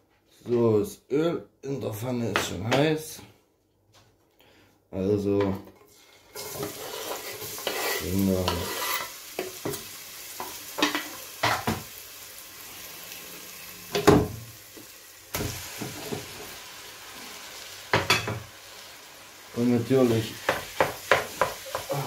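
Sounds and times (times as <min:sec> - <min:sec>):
onion sizzling in hot oil: 0:06.3 - 0:22.0
knife scraping chopping board: 0:06.5 - 0:08.0.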